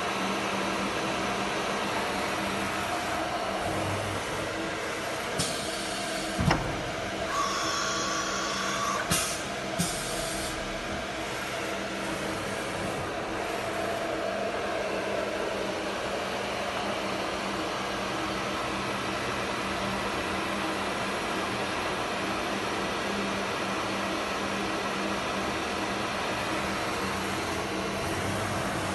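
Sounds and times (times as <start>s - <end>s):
high machine whine: 0.0s - 28.9s
machine hum: 0.0s - 28.9s
thump: 6.4s - 6.8s
pneumatic air hisses: 7.3s - 10.7s.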